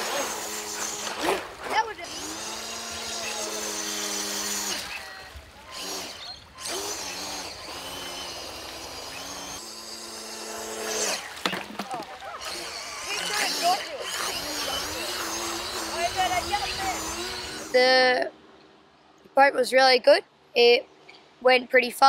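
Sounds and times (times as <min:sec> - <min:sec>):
toy boat electric motor whining: 0:00.0 - 0:11.5, 0:12.3 - 0:17.9.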